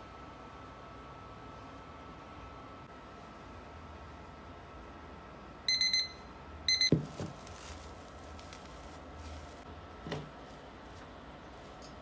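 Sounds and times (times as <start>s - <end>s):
kitchen timer beeping: 5.7s - 6.9s
cling film rustling: 6.9s - 12.0s.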